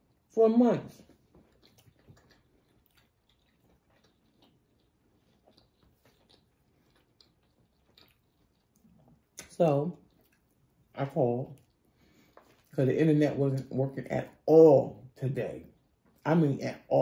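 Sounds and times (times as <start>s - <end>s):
chewing chips and sandwich: 0.0s - 14.5s.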